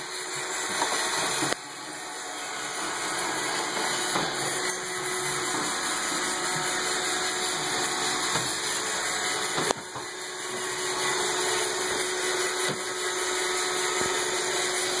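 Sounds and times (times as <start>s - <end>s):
robot vacuum running: 0.0s - 15.0s.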